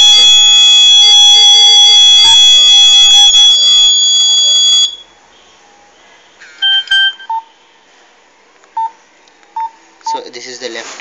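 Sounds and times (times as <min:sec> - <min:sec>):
buzzer high-pitched tone: 0:00.0 - 0:05.0
phone keypad beeps: 0:06.6 - 0:07.5.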